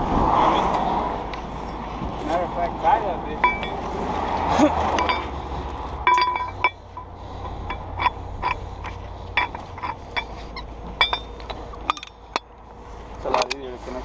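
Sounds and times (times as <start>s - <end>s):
low engine hum: 0.0s - 14.0s
metal chains clinking: 3.4s - 3.9s, 4.6s - 5.4s, 6.0s - 12.5s.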